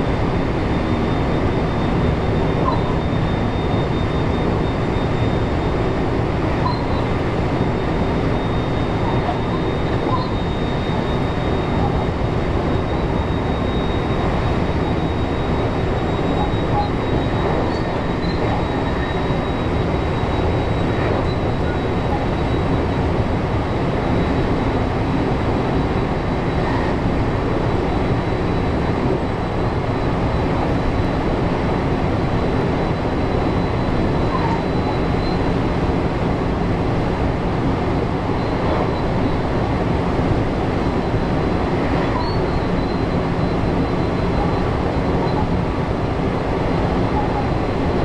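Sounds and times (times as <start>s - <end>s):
faint high-pitched tone: 6.6s - 7.1s.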